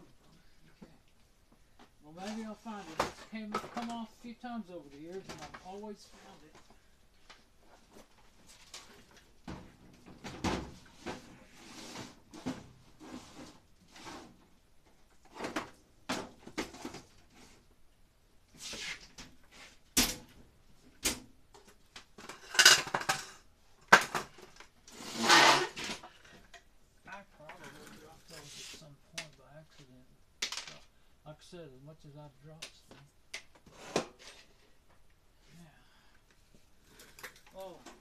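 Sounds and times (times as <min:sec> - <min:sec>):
scrape on workbench: 0:11.0 - 0:14.4, 0:18.6 - 0:19.8, 0:24.9 - 0:26.0, 0:28.3 - 0:28.8, 0:33.6 - 0:34.6.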